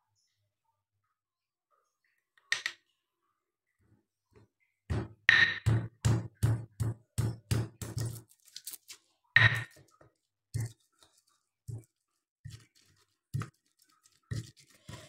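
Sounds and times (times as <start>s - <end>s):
pestle pounding in stone mortar: 4.9s - 8.3s.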